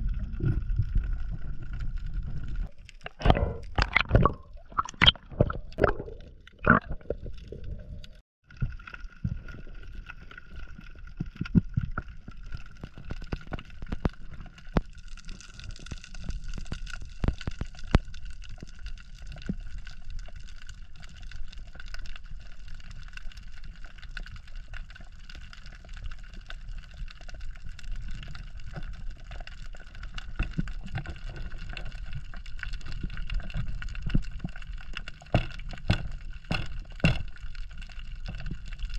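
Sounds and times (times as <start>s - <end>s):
underwater wash of water: 0.0s - 14.6s
sharp clicks and crackles: 0.0s - 38.9s.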